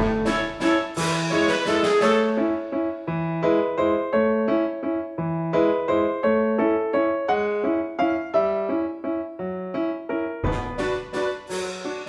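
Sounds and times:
light piano music: 0.0 - 12.0.

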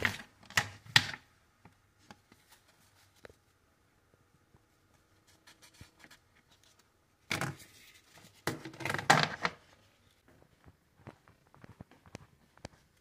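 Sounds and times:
crinkling and knocking handling noise: 4.2 - 13.0.

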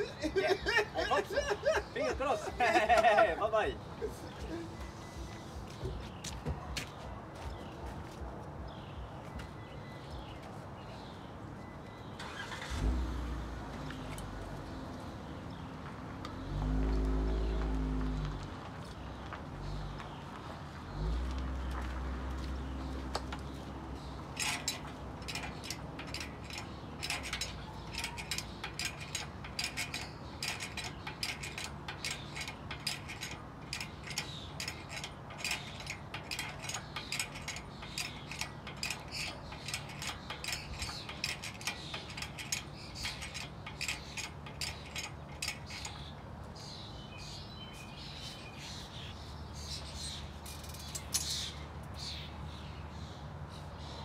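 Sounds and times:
birds chirping: 0.0 - 54.0
ratchet-like mechanical clicking: 24.2 - 46.1.

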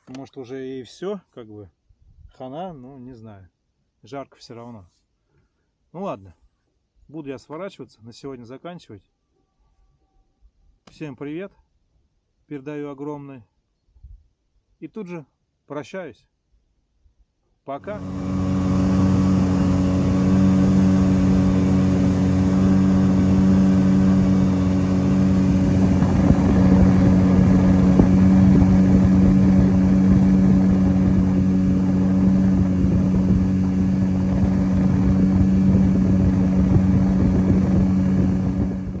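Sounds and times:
outboard motor running: 17.8 - 39.0
wind and water rushing: 17.8 - 39.0.

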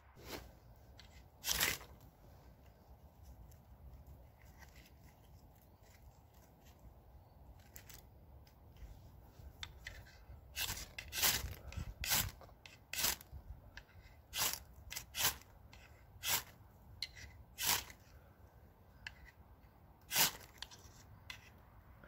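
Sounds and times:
ferro rod scraped with striker: 9.5 - 18.2, 19.0 - 19.4, 20.0 - 21.6.

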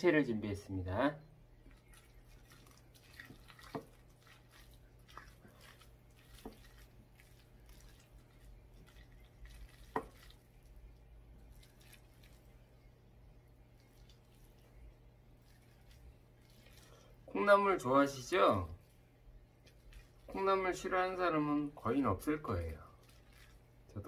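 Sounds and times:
wet rice mixing: 1.4 - 24.0.

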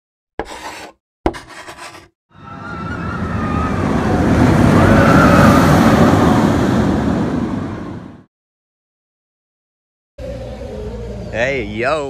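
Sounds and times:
rushing rumble: 2.6 - 8.3.

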